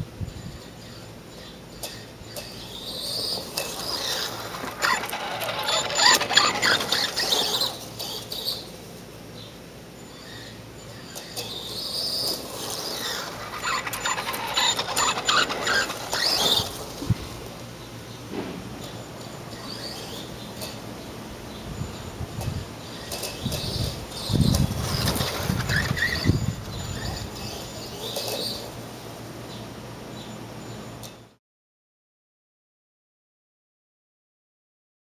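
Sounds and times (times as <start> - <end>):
toy truck electric motor whining: 0.5 - 8.7, 10.1 - 17.6, 18.9 - 20.8, 22.9 - 28.8.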